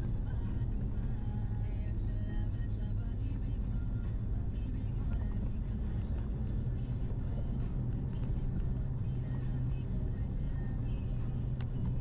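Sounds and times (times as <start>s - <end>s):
car engine and tyres rumbling: 0.0s - 12.0s
faint ticks: 4.8s - 10.2s, 10.9s - 12.0s.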